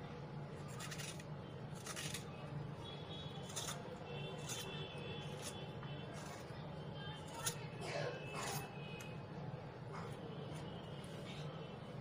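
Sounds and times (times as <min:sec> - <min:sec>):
blade scraping gourd: 0:00.6 - 0:02.4, 0:03.3 - 0:06.6, 0:07.2 - 0:09.1.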